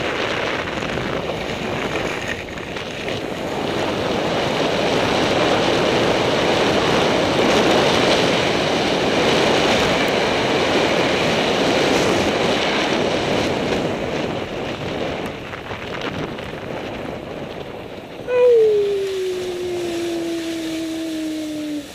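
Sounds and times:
wind rushing over microphone: 0:00.0 - 0:21.9.

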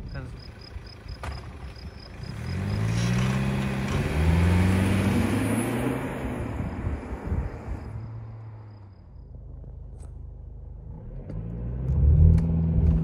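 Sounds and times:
diesel car engine accelerating: 0:00.0 - 0:13.0.

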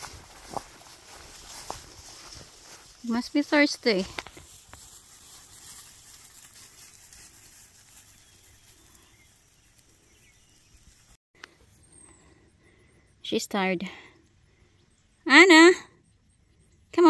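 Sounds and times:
puppies rustling through grass: 0:00.0 - 0:11.2.

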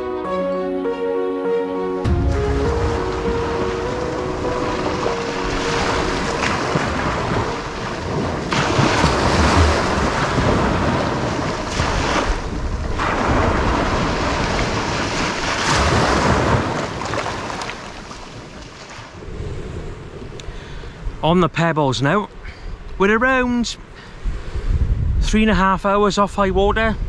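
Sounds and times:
waves washing over pebbles: 0:02.1 - 0:19.2
wind buffeting microphone: 0:02.1 - 0:21.2, 0:22.7 - 0:27.0.

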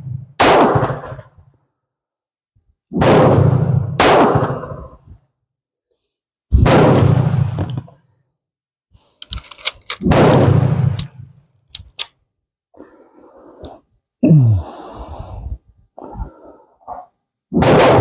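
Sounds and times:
pistol shot: 0:00.4 - 0:01.2, 0:03.0 - 0:04.8, 0:06.6 - 0:07.9, 0:10.0 - 0:11.3, 0:17.6 - 0:18.0
metallic gun handling clicks: 0:09.2 - 0:10.0, 0:11.7 - 0:12.2.

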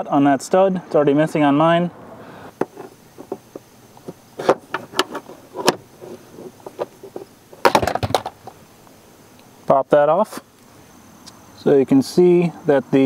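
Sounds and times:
plastic clatter: 0:02.6 - 0:08.6.

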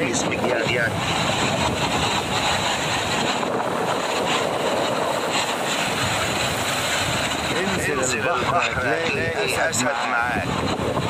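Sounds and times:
waves breaking on beach: 0:00.0 - 0:11.0.

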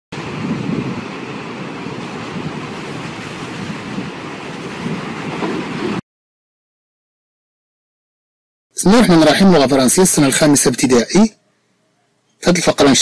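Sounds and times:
rushing wind-like sound effect: 0:00.1 - 0:06.0.

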